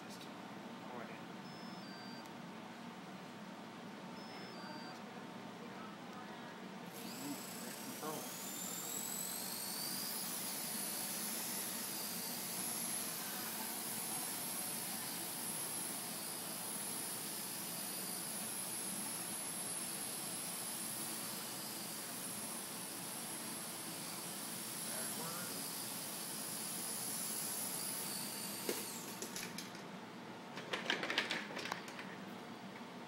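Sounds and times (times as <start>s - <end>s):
toy helicopter motor whine: 1.4s - 2.2s, 4.2s - 5.0s, 6.9s - 29.8s.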